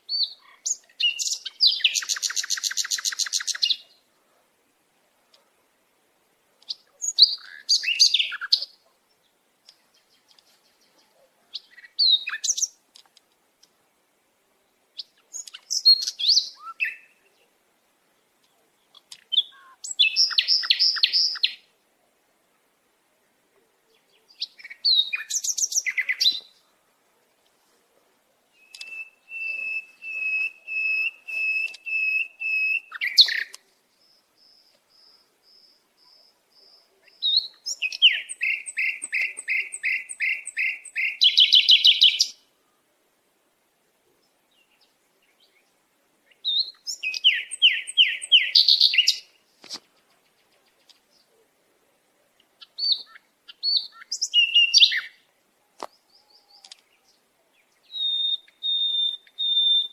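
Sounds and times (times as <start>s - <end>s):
songbird whistling and trilling: 0.1s - 3.8s, 6.7s - 8.7s, 11.5s - 12.7s, 15.0s - 17.2s, 19.3s - 21.6s, 24.4s - 26.5s, 28.6s - 33.6s, 35.5s - 42.4s, 46.4s - 49.3s, 52.6s - 55.2s, 57.8s - 59.9s.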